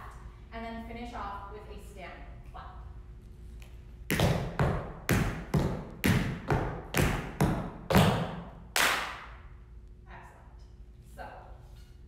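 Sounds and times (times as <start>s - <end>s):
tap shoes on floor: 4.1s - 8.4s.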